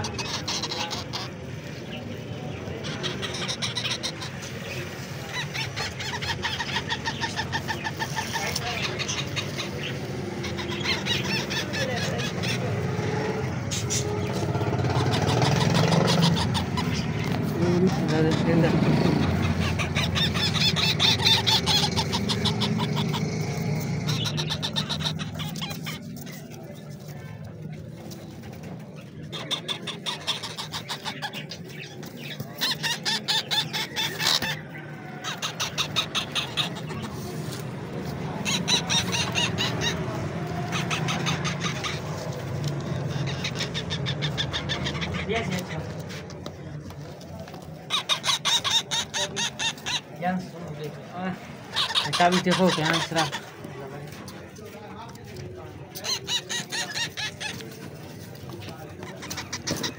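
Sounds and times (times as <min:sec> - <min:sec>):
parrot chicks begging squeaks: 0:00.0 - 0:59.9.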